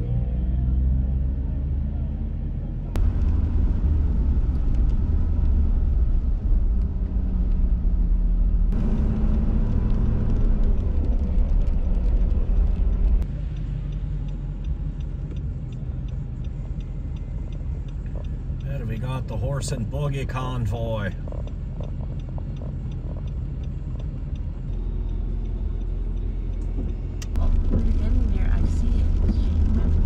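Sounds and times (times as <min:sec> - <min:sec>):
road vehicle rumble: 0:00.0 - 0:30.0
light regular ticking: 0:09.3 - 0:28.1.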